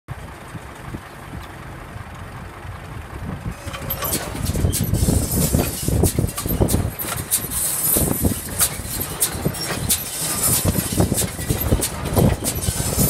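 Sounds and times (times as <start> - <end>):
tractor engine running: 0.1 - 13.0
knocks and rattles: 3.5 - 13.0.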